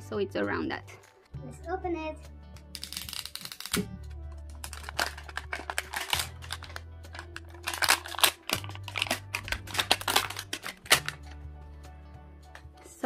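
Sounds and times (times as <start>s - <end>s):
background music with bass line: 0.0s - 13.0s
plastic wrapping crinkling and tearing: 2.8s - 3.8s, 4.6s - 11.4s.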